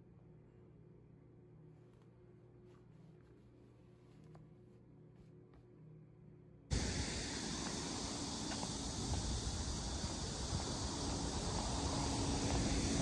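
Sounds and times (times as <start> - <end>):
faint background music: 0.0 - 6.7
wind buffeting microphone: 6.7 - 13.0.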